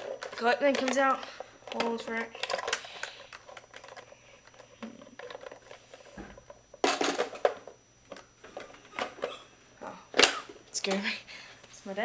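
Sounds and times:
plastic toy handling clicks: 0.0 - 1.1, 1.7 - 5.7
loud plastic clatter: 5.1 - 9.3.

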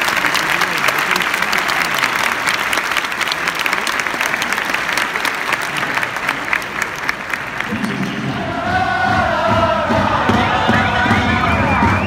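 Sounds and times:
individual claps close by: 0.0 - 7.8
stadium crowd applauding: 0.0 - 8.8, 10.3 - 12.0.

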